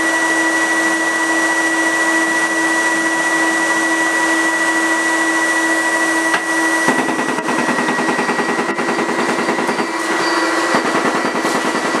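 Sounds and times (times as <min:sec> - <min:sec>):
fume filter whine and air rush: 0:00.0 - 0:11.8
laser cutter rattle: 0:06.4 - 0:12.0.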